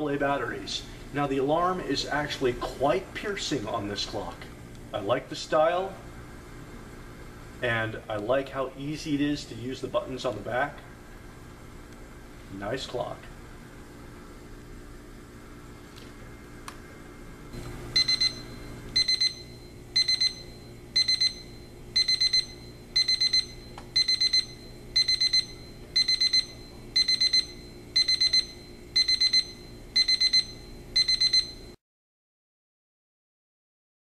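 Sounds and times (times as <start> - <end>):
alarm clock beeping: 18.0 - 31.7.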